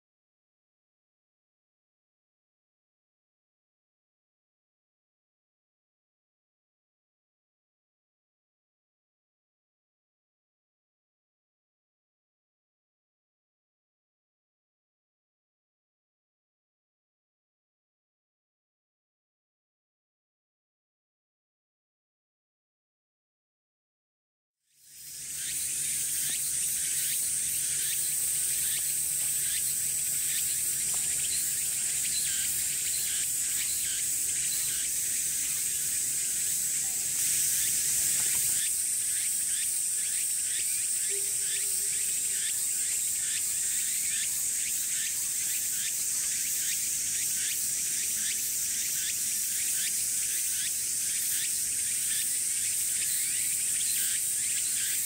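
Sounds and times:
cicadas droning: 24.7 - 55.0.

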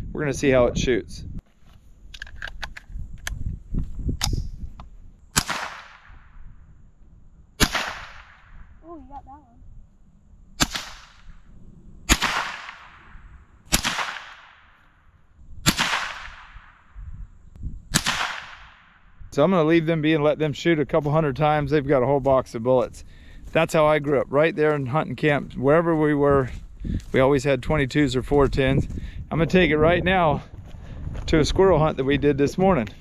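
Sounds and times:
rifle shots echoing: 5.4 - 6.4, 7.6 - 8.6, 10.6 - 11.4, 12.0 - 15.0, 15.6 - 17.0, 17.9 - 19.0.

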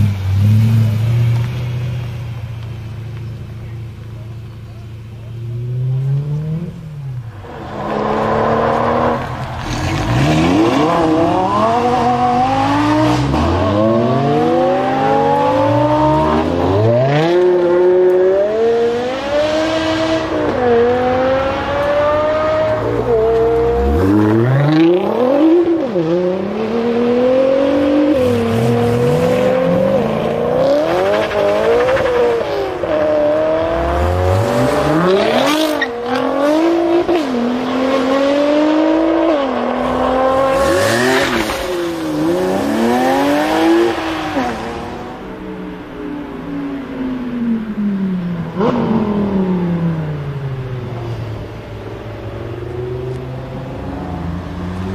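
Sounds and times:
car engine accelerating hard: 3.2 - 45.2.

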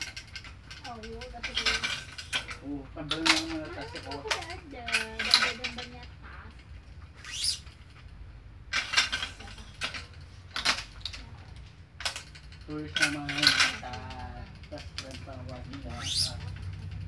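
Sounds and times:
stringing machine clicks and knocks: 0.0 - 6.9, 8.0 - 17.0.

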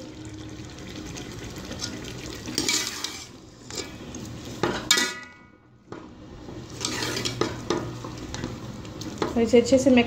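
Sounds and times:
metal spoon scraping cooking pot: 2.5 - 4.1, 6.7 - 7.7.

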